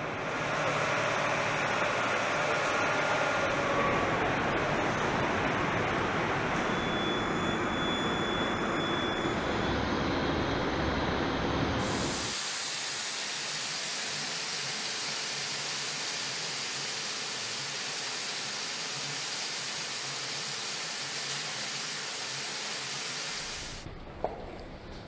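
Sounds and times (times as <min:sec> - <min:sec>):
paint spray guns hissing: 0:11.8 - 0:23.9.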